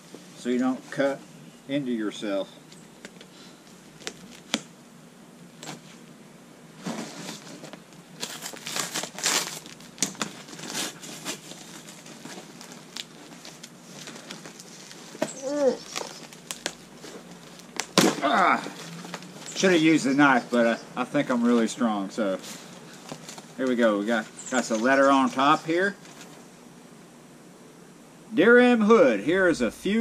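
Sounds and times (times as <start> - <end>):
plastic packing crinkling: 3.1 - 4.7, 6.9 - 20.0, 22.4 - 26.4
packing tape ripping: 3.9 - 4.7, 6.9 - 19.6.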